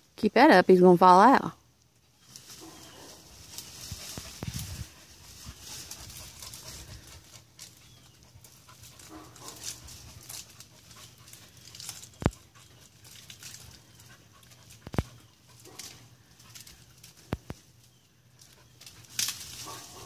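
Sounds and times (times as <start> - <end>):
leaves and branches rustling: 1.3 - 20.0
branch cracking: 8.8 - 20.0.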